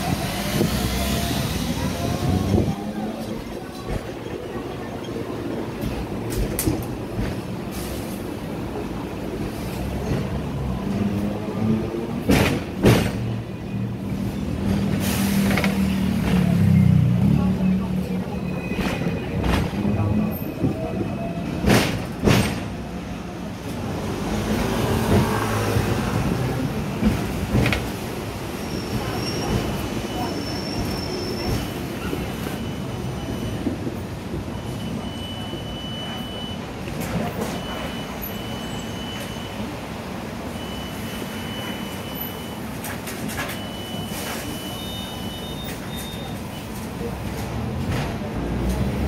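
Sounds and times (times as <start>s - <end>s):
tram rumble and rattle: 0.0s - 49.0s.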